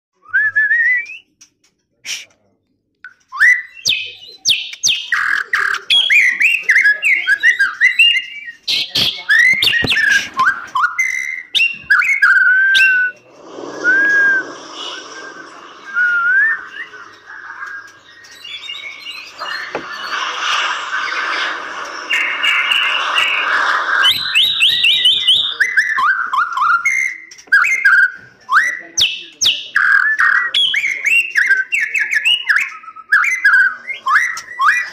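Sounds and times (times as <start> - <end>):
sharp bird clicks: 3.0 - 6.6
bird singing whistled phrases: 3.1 - 13.2, 13.8 - 21.4, 22.0 - 34.9
steady rushing noise: 13.3 - 17.4, 19.6 - 24.4.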